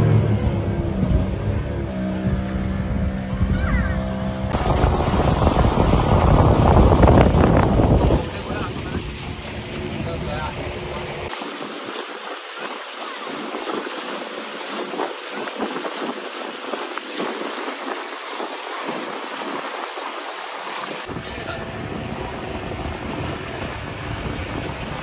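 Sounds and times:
deep rumble: 0.0 - 11.3
water rushing past boat hull: 0.0 - 25.0
wind: 0.0 - 25.0.

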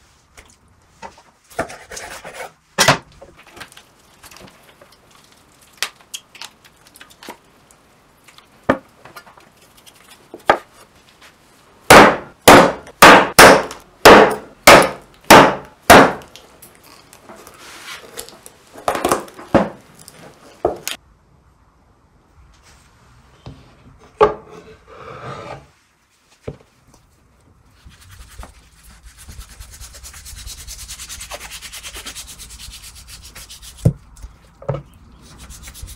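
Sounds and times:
cleaver chopping on wooden board: 11.9 - 16.3.

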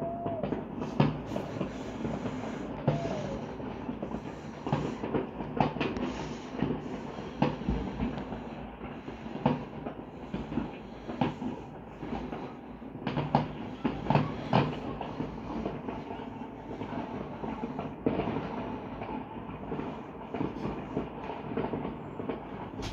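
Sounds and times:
distant explosions rumbling: 0.0 - 22.9
fireworks bangs and pops: 0.0 - 22.9.

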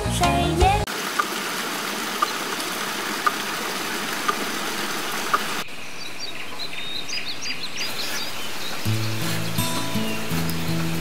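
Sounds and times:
water pump clicking: 0.9 - 5.6
stream water rushing: 0.9 - 5.7, 8.2 - 11.0
small birds chirping: 4.2 - 11.0.

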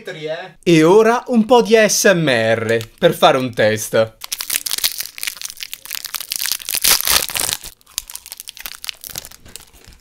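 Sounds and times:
plastic wrapper crinkling: 4.2 - 10.0.

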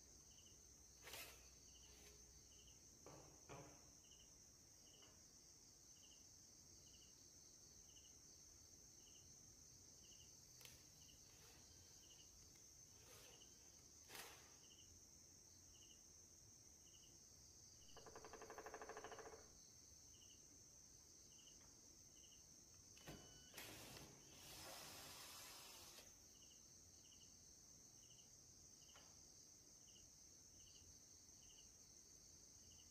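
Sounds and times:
faint steady hiss: 19.7 - 32.9.

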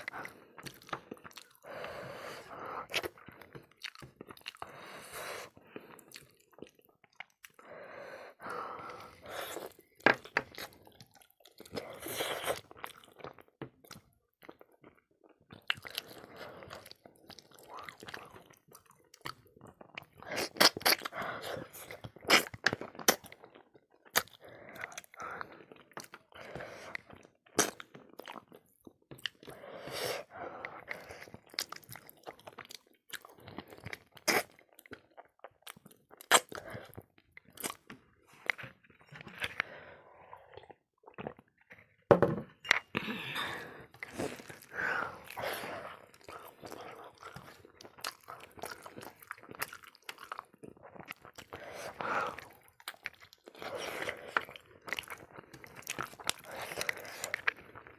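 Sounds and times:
person chewing with crunches: 0.0 - 7.7, 8.3 - 57.9
wet mouth sounds: 15.5 - 23.4, 29.2 - 41.9.

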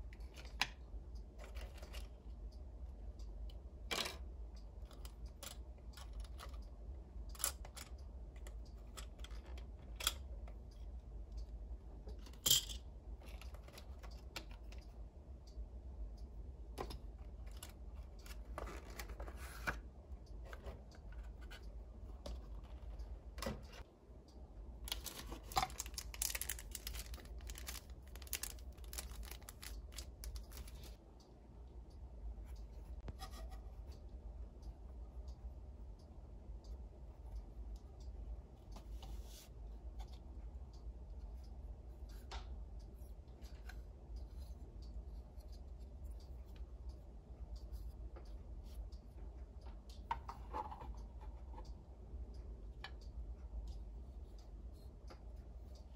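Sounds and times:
steady low hum: 0.0 - 55.9
plastic toy pieces clicking: 24.9 - 30.8
packaging crinkling: 24.9 - 31.0.

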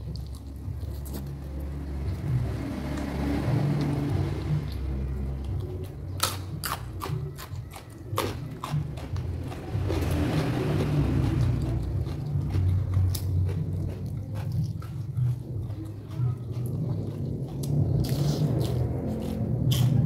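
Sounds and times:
vegetables crunching: 0.0 - 1.9, 4.6 - 20.0
soft chewing: 0.0 - 3.1, 3.8 - 20.0
steady low rumble: 8.4 - 20.0.

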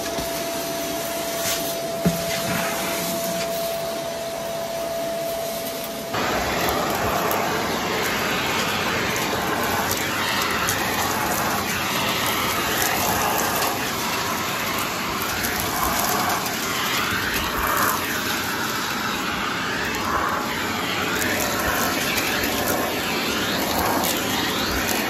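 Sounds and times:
vacuum cleaner running: 0.0 - 25.0
debris crackling up hose: 5.6 - 25.0.

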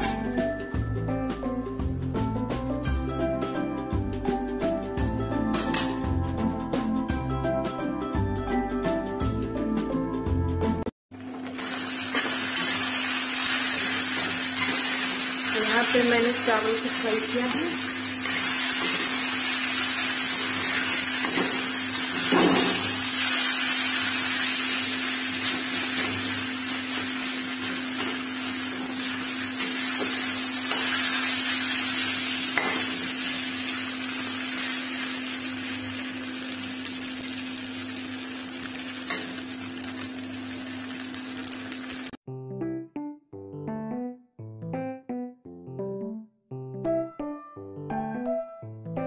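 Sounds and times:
rice sizzling in a pan: 11.2 - 42.2
steel spatula scraping a pan: 11.6 - 16.0, 18.2 - 24.7.

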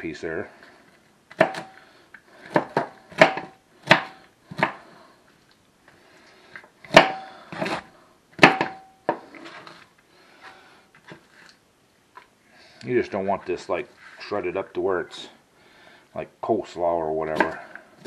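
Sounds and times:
knife chopping on cutting board: 1.4 - 1.7, 2.5 - 4.8.

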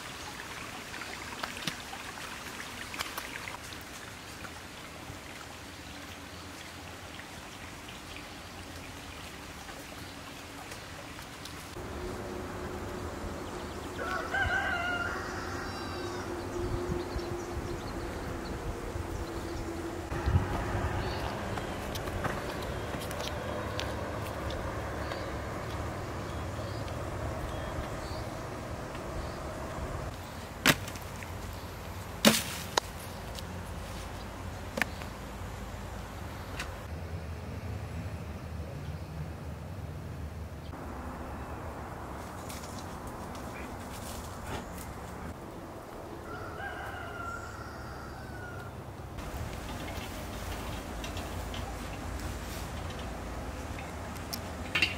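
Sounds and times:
steady low hum: 11.8 - 14.0
rooster crowing: 13.9 - 16.6, 46.2 - 48.9.

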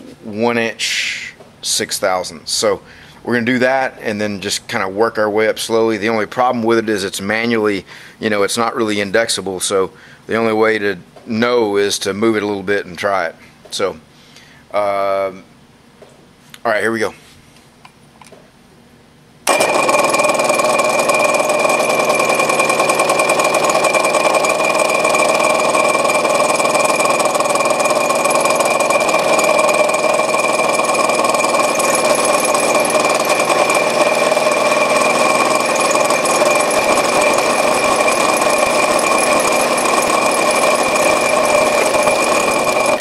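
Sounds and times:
cutter boring metal: 19.5 - 43.0
milling machine spindle whine: 19.5 - 43.0.

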